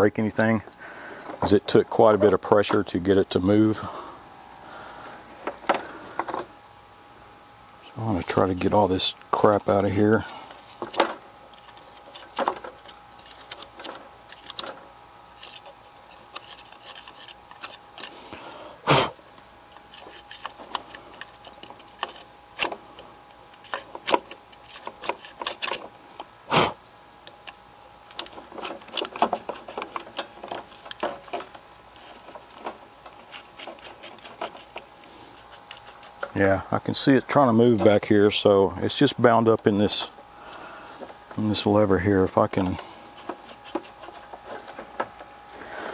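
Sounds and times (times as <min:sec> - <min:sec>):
metal pick scraping metal: 0:09.8 - 0:18.6, 0:19.7 - 0:26.0, 0:27.4 - 0:36.3.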